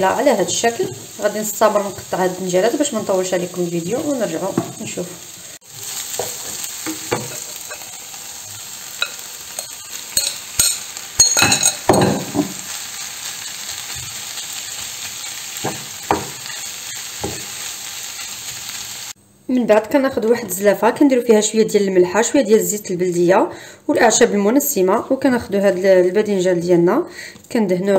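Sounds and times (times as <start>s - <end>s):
vegetables sizzling in oil: 0.0s - 19.2s.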